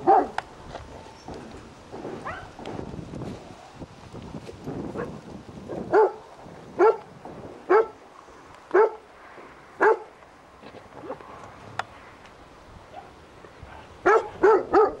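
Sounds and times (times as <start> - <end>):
dog barking: 0.0 - 0.4, 2.2 - 2.6, 5.9 - 6.2, 6.8 - 7.0, 7.7 - 8.0, 8.7 - 9.0, 9.8 - 10.1, 12.9 - 15.0.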